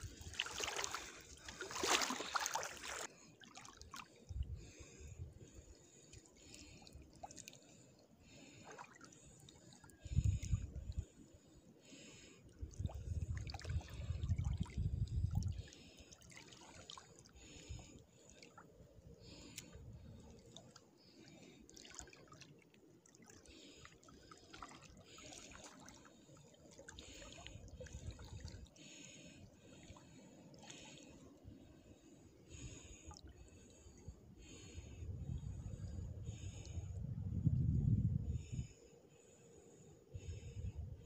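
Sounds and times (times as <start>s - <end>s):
water sloshing around wading legs: 0.0s - 5.0s, 8.4s - 10.6s, 12.8s - 18.7s, 19.3s - 29.1s.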